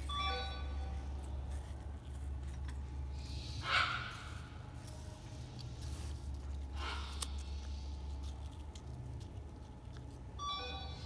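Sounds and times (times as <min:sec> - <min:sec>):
animal chewing apple: 0:00.9 - 0:10.4.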